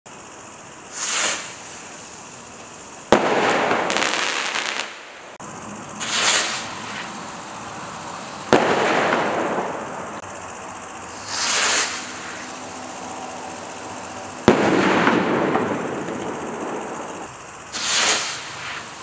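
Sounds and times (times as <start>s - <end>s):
firework crackle: 0.1s - 19.0s
firework bang: 3.1s - 5.0s, 6.0s - 7.1s, 8.5s - 10.2s, 11.2s - 12.4s, 14.4s - 18.8s
rocket launch whoosh: 6.0s - 7.1s, 17.8s - 18.8s.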